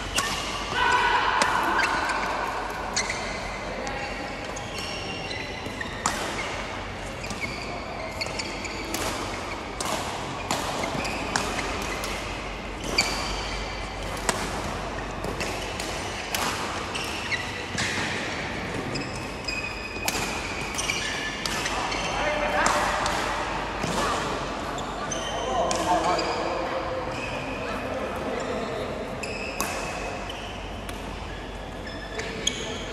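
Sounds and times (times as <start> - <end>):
shoes squeaking on court floor: 1.7 - 27.7, 28.3 - 32.9
racket striking shuttlecock: 8.3 - 18.2.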